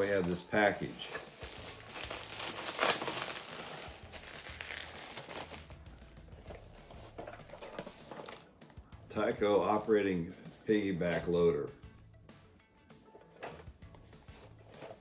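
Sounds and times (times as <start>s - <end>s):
plastic wrapping crinkling: 0.0s - 8.4s.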